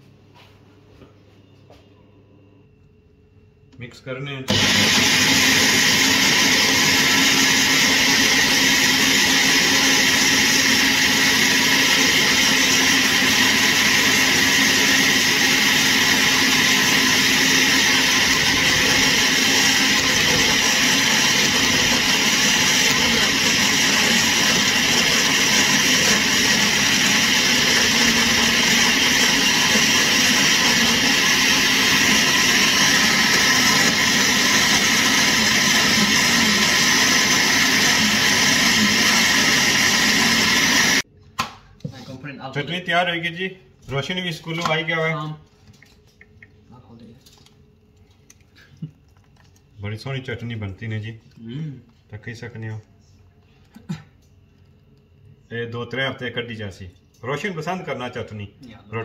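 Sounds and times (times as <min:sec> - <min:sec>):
blender running: 0:04.5 - 0:41.1.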